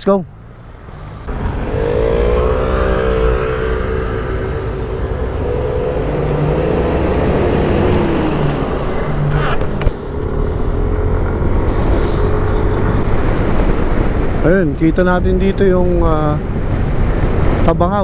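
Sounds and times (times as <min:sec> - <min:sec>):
road and wind noise: 0:00.0 - 0:18.0
motorcycle engine running: 0:00.4 - 0:14.4.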